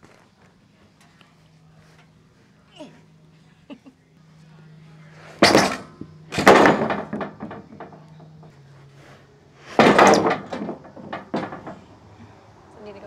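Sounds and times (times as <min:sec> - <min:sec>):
wooden boards clattering: 0:05.4 - 0:08.5, 0:09.7 - 0:12.0
boards knocking as they settle: 0:09.8 - 0:11.9.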